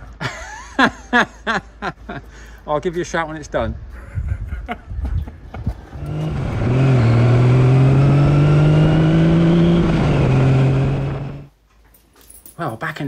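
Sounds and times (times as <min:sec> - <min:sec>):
motorcycle engine running: 0:06.0 - 0:11.5.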